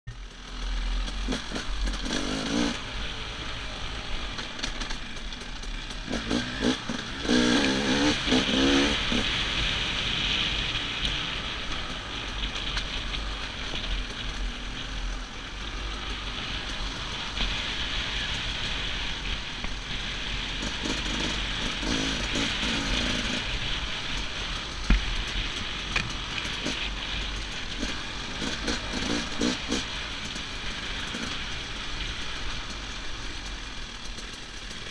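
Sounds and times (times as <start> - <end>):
dirt bike engine revving: 0.4 - 4.9, 5.6 - 12.2, 15.6 - 24.6, 25.2 - 32.3.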